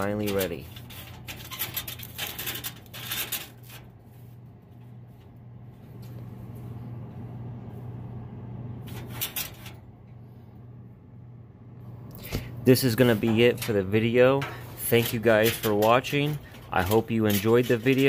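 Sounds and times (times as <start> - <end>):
metal parts clanking and rattling: 0.0 - 3.9, 8.9 - 9.8, 13.0 - 18.0
steady low hum: 0.0 - 18.0.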